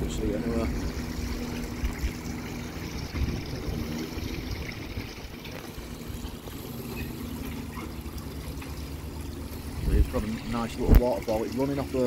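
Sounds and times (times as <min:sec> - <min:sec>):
pond waterfall splashing: 0:00.0 - 0:12.0.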